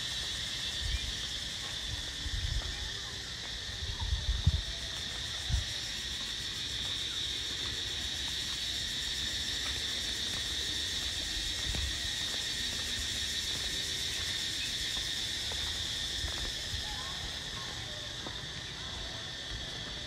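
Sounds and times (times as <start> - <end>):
insect chorus drone: 0.0 - 20.0.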